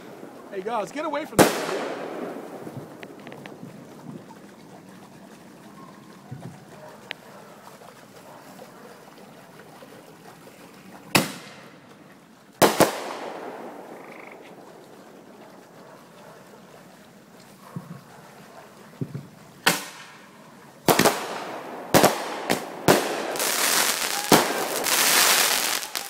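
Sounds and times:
fireworks bangs: 0.0 - 3.6, 12.6 - 14.1, 19.0 - 20.2, 20.8 - 26.0.

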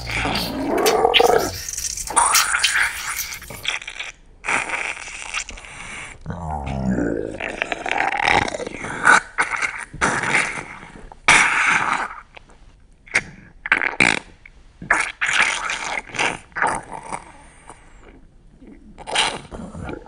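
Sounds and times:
rough spluttering bodily noises: 0.0 - 3.7.

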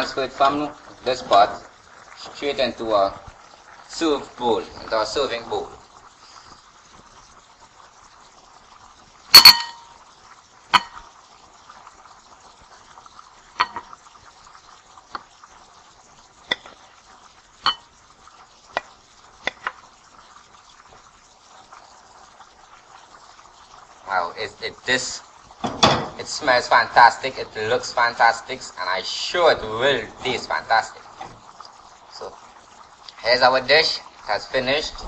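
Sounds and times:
faint steady hiss: 0.0 - 35.0
spoon clinking on pot and bowl: 9.4 - 10.0, 10.8 - 11.0, 13.6 - 13.9, 17.6 - 17.9.

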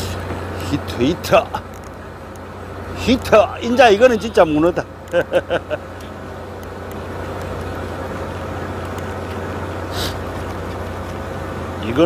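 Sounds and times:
boat engine humming: 0.0 - 12.0
short hiss: 9.9 - 10.3.

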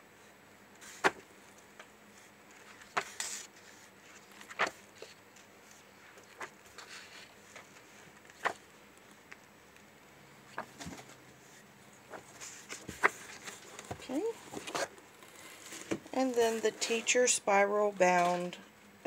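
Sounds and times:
sharp page flaps: 0.8 - 1.2, 4.3 - 4.8, 8.3 - 8.6
paper rustling: 2.2 - 9.2, 10.5 - 17.0.

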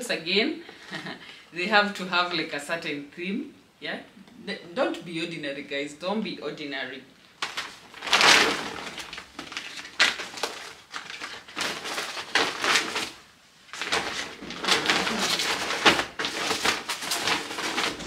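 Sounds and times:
bag rustling and crinkling: 7.4 - 18.0.

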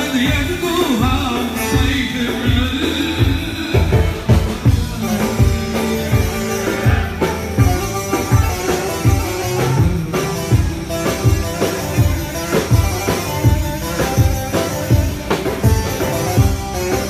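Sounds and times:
man singing: 0.0 - 7.8, 9.4 - 10.8
drum kit beat: 0.0 - 17.0.

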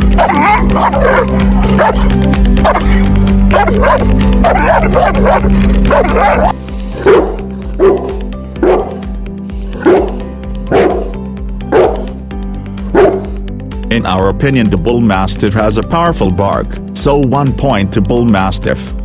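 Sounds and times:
background music: 0.0 - 19.0
dog barking in a quick run: 0.2 - 2.9, 3.5 - 9.0, 9.8 - 11.1, 11.7 - 12.1, 12.9 - 13.3.

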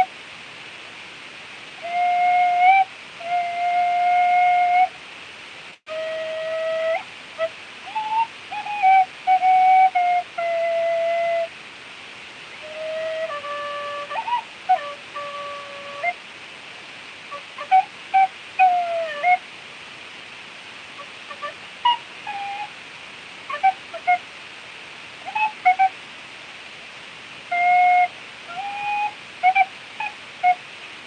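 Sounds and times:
tin whistle melody: 1.8 - 4.9, 5.9 - 11.5, 12.6 - 16.2, 17.3 - 19.4, 21.3 - 22.7, 23.5 - 24.2, 25.3 - 25.9, 27.5 - 30.6.

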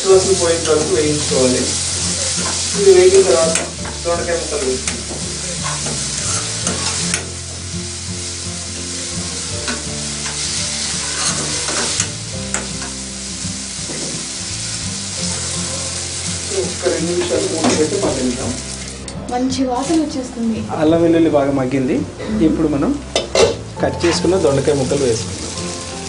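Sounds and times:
food sizzling in oil: 0.0 - 21.8, 22.6 - 26.0
spatula scraping a pan: 0.2 - 3.7, 5.6 - 7.3, 9.7 - 13.0.

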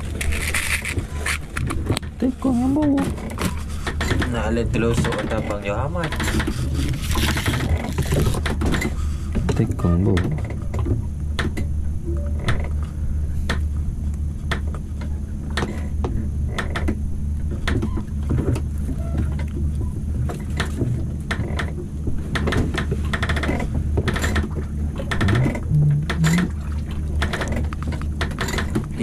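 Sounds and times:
boat engine droning: 0.0 - 29.0
sharp clicks and knocks: 2.9 - 6.6, 7.2 - 11.7, 20.3 - 26.6.

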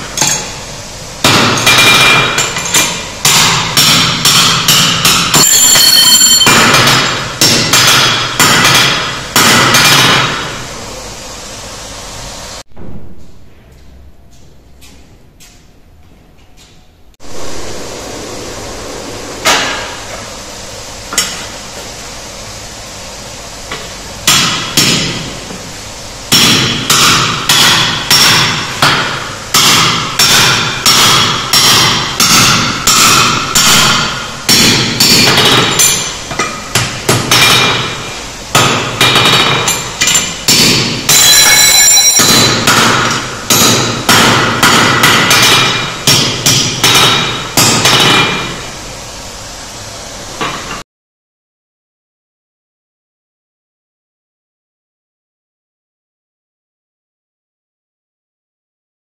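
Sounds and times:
hammer striking steel on anvil: 0.1 - 0.6, 1.2 - 10.6, 26.3 - 48.6.

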